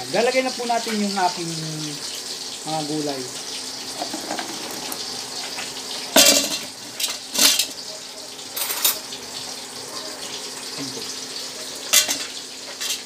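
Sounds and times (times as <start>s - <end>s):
pots and utensils clattering: 3.8s - 9.2s, 11.6s - 13.0s.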